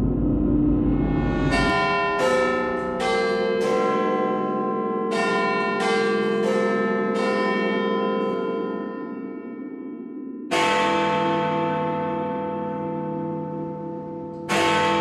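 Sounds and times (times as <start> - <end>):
church bells ringing: 1.5 - 15.0.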